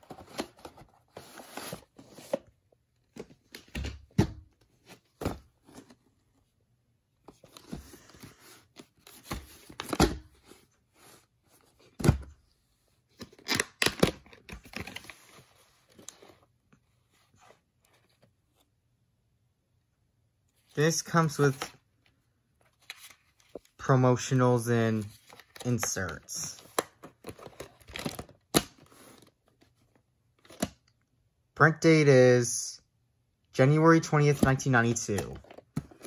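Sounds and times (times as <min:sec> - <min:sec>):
plastic cases rustling and scraping: 0:00.0 - 0:06.2, 0:24.9 - 0:30.7, 0:34.3 - 0:36.0.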